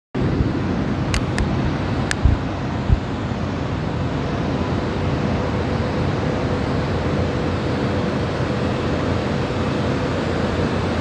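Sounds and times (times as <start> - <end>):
aircraft noise: 0.2 - 11.0
faint steady hum: 0.2 - 11.0.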